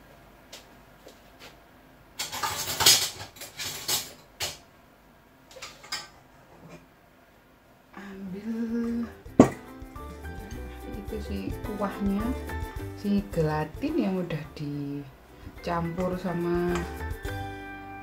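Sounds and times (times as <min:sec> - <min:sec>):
kitchenware clattering and rustling: 0:02.2 - 0:04.7, 0:05.5 - 0:06.9
light knocks of pot and bowl: 0:09.3 - 0:09.7.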